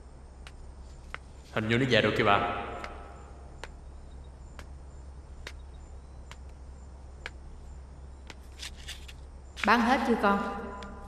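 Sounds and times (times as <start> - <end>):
steady low hum: 0.0 - 11.0
faint high chirps: 0.6 - 8.4.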